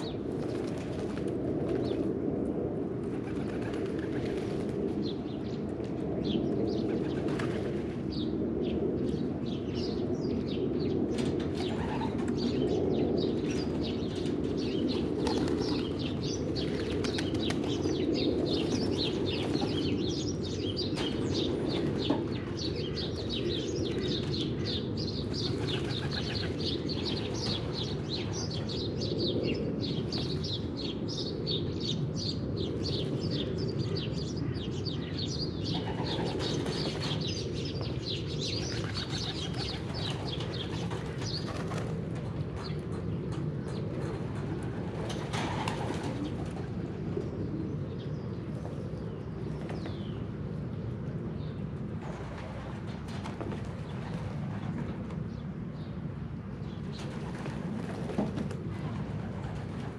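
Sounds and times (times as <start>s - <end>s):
pigeons flapping and splashing: 0.3s - 2.0s, 3.0s - 4.8s, 7.0s - 8.0s, 14.8s - 18.0s, 25.3s - 27.8s, 38.7s - 42.8s, 44.0s - 46.7s, 57.0s - 59.9s
pigeons cooing: 10.8s - 30.3s, 35.6s - 37.8s, 43.6s - 47.8s.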